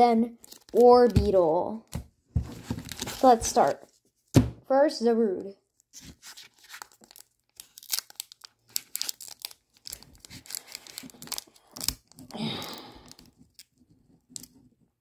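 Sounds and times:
foil wrapper crinkling and tearing: 0:00.4 - 0:01.2, 0:02.7 - 0:03.8, 0:05.8 - 0:13.8.

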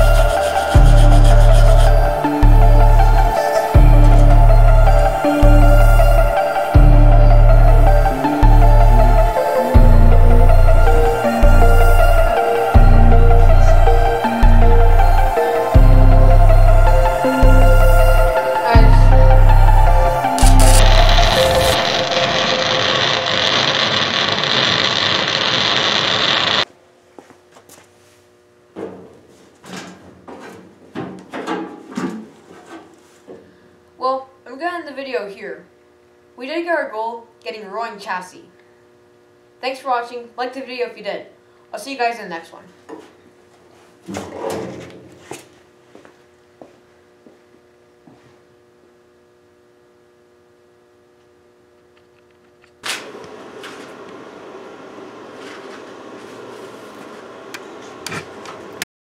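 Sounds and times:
arc welding crackling hiss: 0:00.0 - 0:02.4, 0:20.2 - 0:26.7
loud burst of noise: 0:19.5 - 0:26.7
faint room hum: 0:26.7 - 0:53.0.

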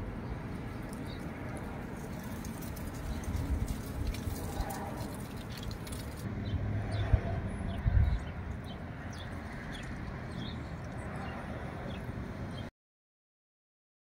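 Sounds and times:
steady low rumble: 0:00.0 - 0:12.7.

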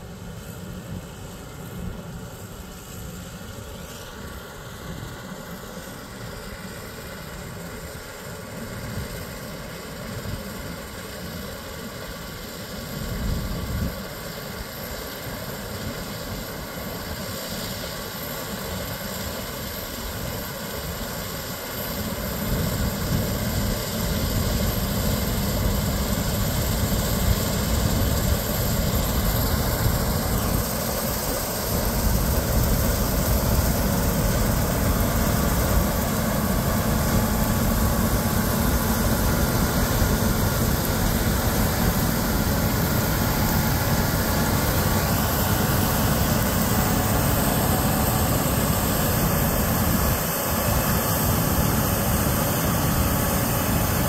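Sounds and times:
combine harvester drone and whine: 0:00.0 - 0:54.0.

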